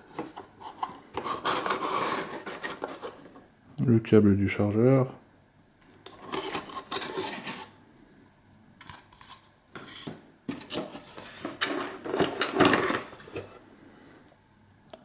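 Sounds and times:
cardboard rubbing and scraping: 0.7s - 3.2s.

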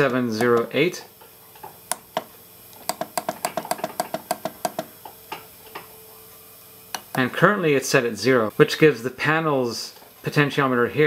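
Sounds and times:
buttons clicking: 0.0s - 0.7s.

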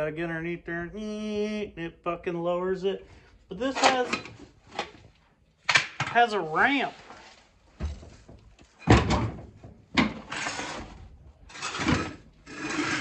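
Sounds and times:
tire carrier scraping on ramp: 10.2s - 13.0s.

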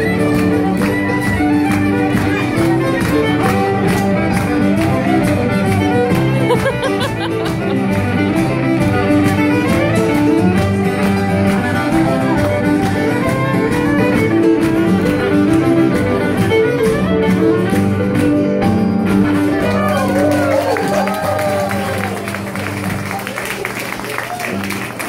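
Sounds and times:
fiddle playing dance tune: 0.0s - 23.4s
strummed chordal backing: 0.0s - 23.9s.

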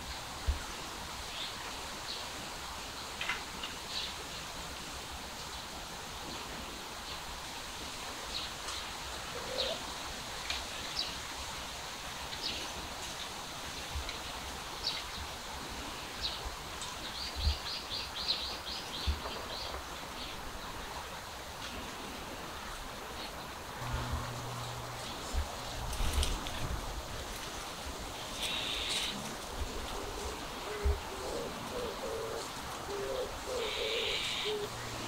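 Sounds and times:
steady outdoor hiss: 0.0s - 35.0s
birds chirping: 28.2s - 29.3s, 30.0s - 35.0s.

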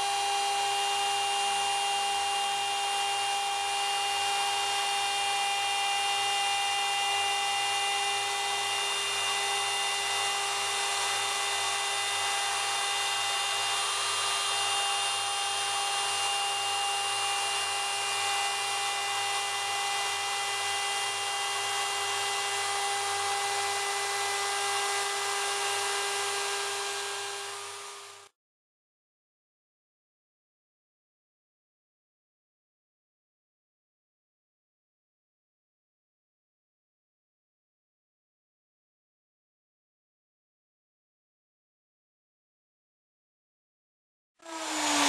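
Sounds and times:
router motor whining: 0.0s - 28.4s, 44.4s - 45.0s.

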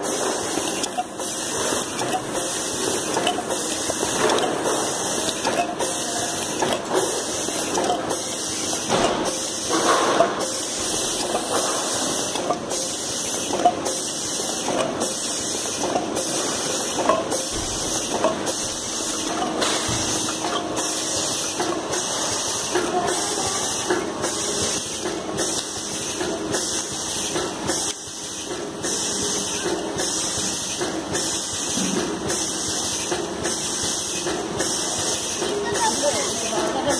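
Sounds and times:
hiss of air from filling machine: 0.0s - 36.9s
light mechanical clacks: 0.2s - 23.2s.

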